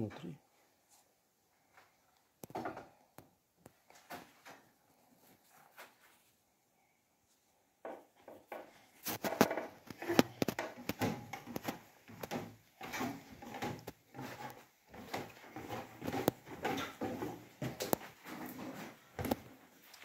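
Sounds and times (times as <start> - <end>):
footsteps on wooden staircase: 7.8 - 19.6.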